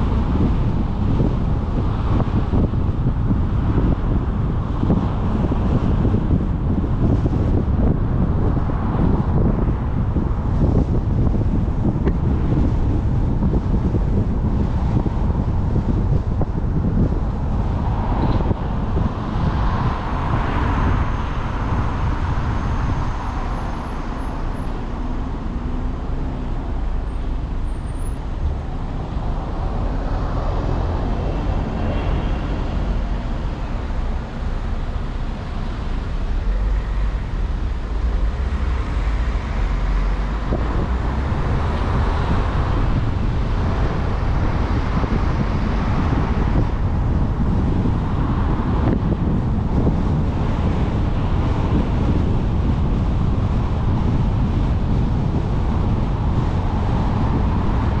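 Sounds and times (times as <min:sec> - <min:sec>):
road and tyre rumble: 0:00.0 - 0:58.0.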